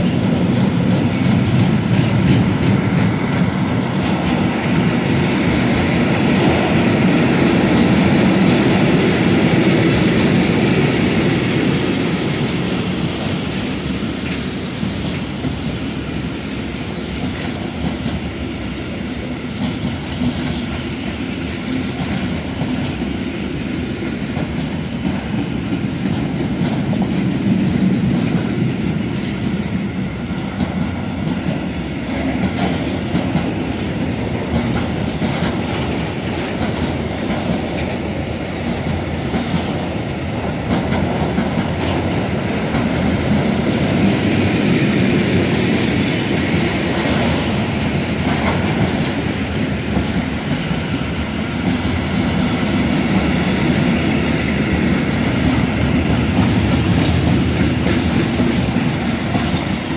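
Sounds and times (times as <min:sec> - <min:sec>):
clickety-clack over rail joints: 0:00.0 - 0:59.9
freight train rolling past: 0:00.0 - 0:59.9.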